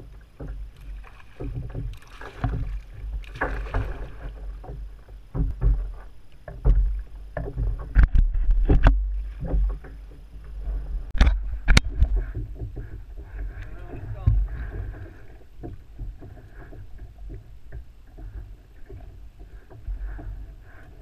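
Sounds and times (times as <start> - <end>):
gear knocking on plastic hull: 0.0 - 21.0
water sloshing around kayak: 0.0 - 21.0
fish splashing: 0.8 - 4.6
wind rumble on microphone: 1.4 - 21.0.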